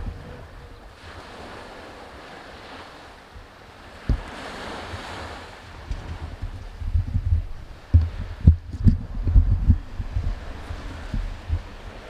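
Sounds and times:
waves breaking on a beach: 0:00.0 - 0:12.0
wind on microphone: 0:00.0 - 0:12.0
dull thump: 0:04.0 - 0:04.3.

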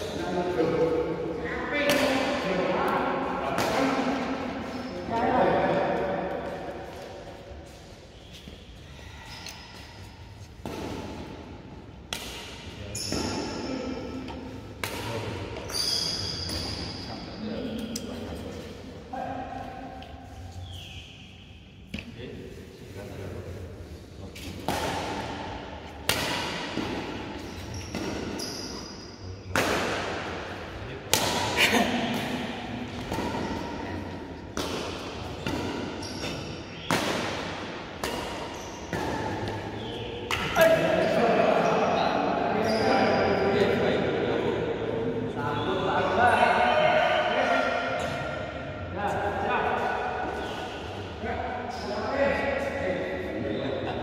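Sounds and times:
racket hitting shuttlecock: 0:01.8 - 0:04.8, 0:10.6 - 0:15.6, 0:24.4 - 0:28.8, 0:29.5 - 0:40.8.

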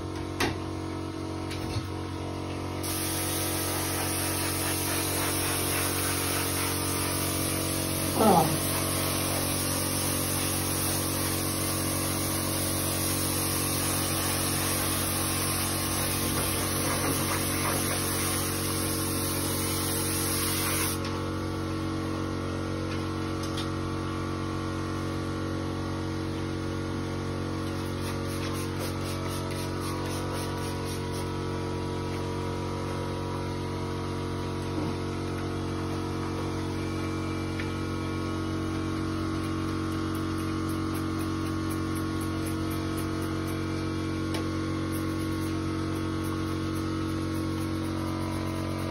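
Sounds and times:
steady electrical hum: 0:00.0 - 0:24.1, 0:27.6 - 0:48.9
spray gun hissing: 0:02.8 - 0:21.0, 0:44.9 - 0:48.9.

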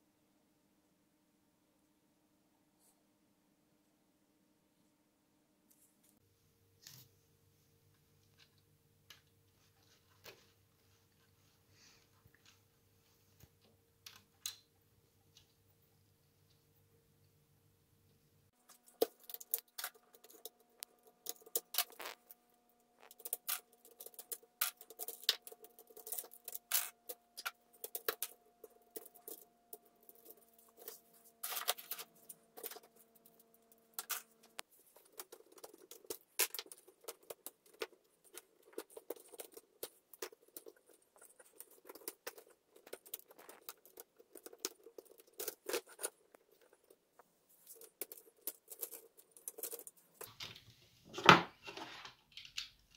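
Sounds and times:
plastic parts clicking and rattling: 0:18.6 - 0:52.9.

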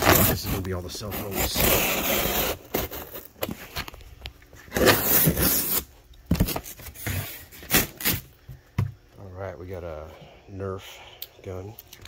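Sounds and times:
knife scraping through cardboard: 0:00.0 - 0:03.3, 0:04.7 - 0:08.2
cardboard rubbing: 0:00.0 - 0:03.6, 0:04.7 - 0:08.3.

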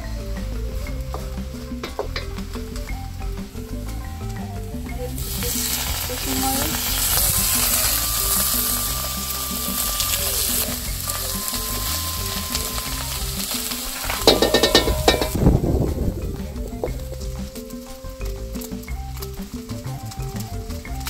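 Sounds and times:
fish sizzling in wok: 0:05.1 - 0:15.4.

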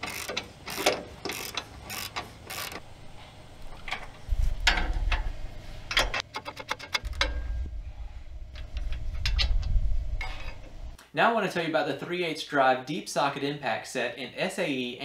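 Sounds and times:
hand ratchet clicking: 0:00.0 - 0:02.8
low rumble: 0:07.0 - 0:11.0.

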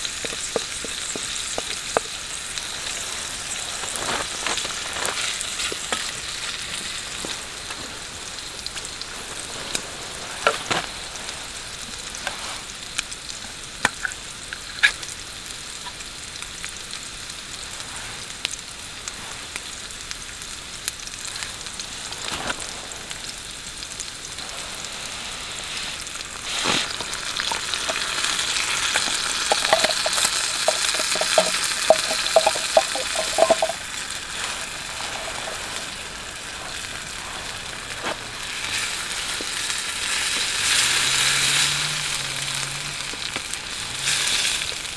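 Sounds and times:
meat sizzling in a frying pan: 0:00.0 - 0:44.9
wooden stick scraping a pan: 0:00.1 - 0:02.2, 0:25.6 - 0:35.9.

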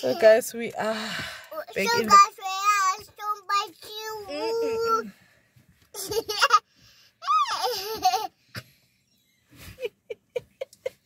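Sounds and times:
woman laughing: 0:09.6 - 0:11.0.

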